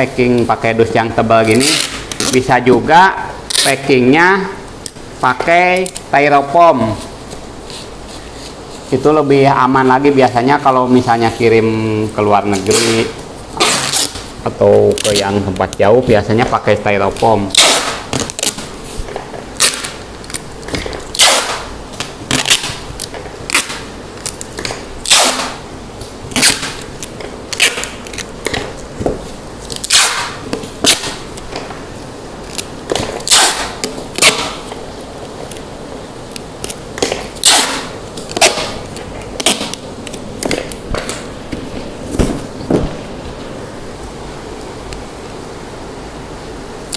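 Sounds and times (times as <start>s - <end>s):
packing tape screeching off roll: 1.4s - 2.6s, 3.5s - 3.9s, 12.5s - 15.4s, 17.1s - 25.6s, 26.3s - 28.7s, 29.6s - 31.4s, 32.4s - 34.7s, 36.6s - 41.3s.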